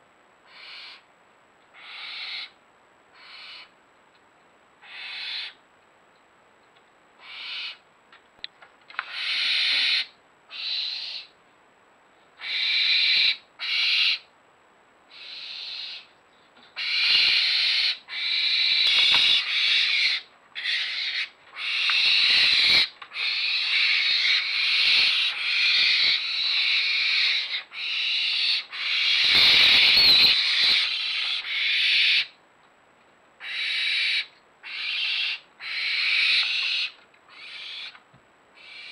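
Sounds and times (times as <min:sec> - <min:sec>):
barn owls hissing: 0:00.5 - 0:01.0, 0:01.8 - 0:02.6, 0:03.2 - 0:03.7, 0:04.8 - 0:05.6, 0:07.2 - 0:07.8, 0:09.0 - 0:11.3, 0:12.4 - 0:14.3, 0:15.1 - 0:16.1, 0:16.8 - 0:32.3, 0:33.4 - 0:38.0, 0:38.6 - 0:38.9.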